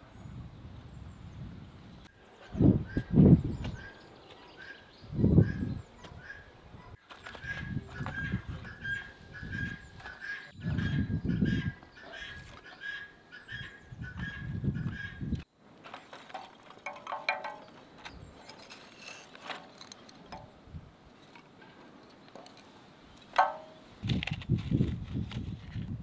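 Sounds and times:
kindling sticks clattering on steel: 0:16.1 - 0:20.6, 0:23.2 - 0:23.9.

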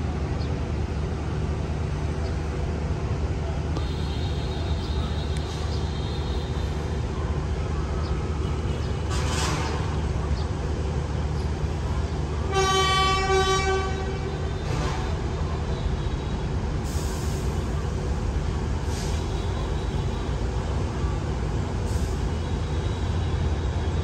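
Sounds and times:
locomotive engine rumble: 0:00.0 - 0:24.0
locomotive horn blast: 0:03.8 - 0:06.8, 0:12.4 - 0:15.4.

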